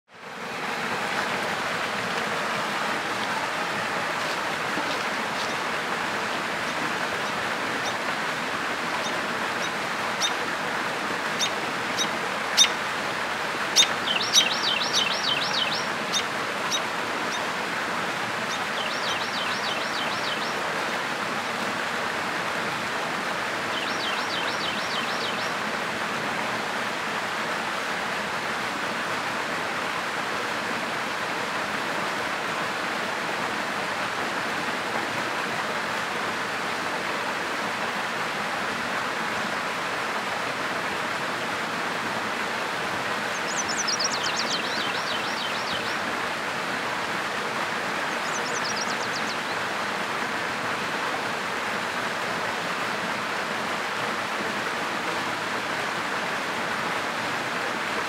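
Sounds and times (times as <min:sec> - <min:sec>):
waterfall splashing into pool: 0:00.2 - 0:58.0
bird trills: 0:13.8 - 0:16.2.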